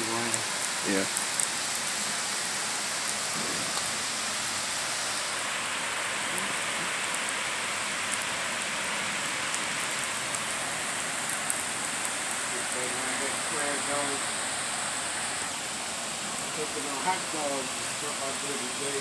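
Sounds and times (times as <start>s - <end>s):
rain on pavement: 0.0s - 19.0s.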